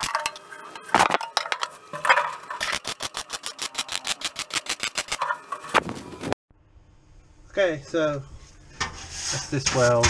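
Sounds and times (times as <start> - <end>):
welder crackling: 1.8 - 6.2.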